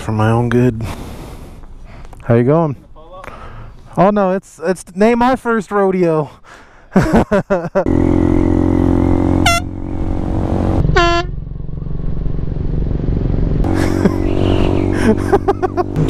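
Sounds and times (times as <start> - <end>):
motorcycle engine pulling away: 7.8 - 16.0
air horn blasts: 9.2 - 9.9, 10.8 - 11.4.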